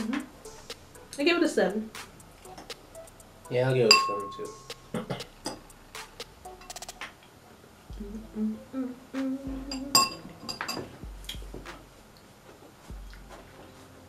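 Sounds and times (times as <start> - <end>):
spoon clinking against bowl: 3.9 - 4.5, 9.9 - 10.9
person humming: 7.9 - 10.4.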